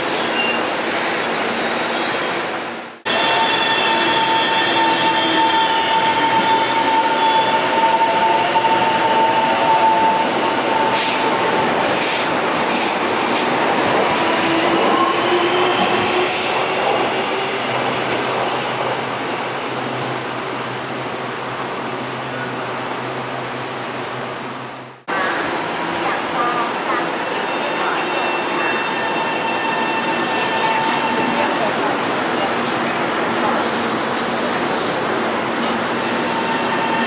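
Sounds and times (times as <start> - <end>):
high train squeal: 0.0 - 11.4, 14.2 - 22.4, 26.9 - 32.9, 35.8 - 37.0
train rushing rumble: 2.7 - 20.5.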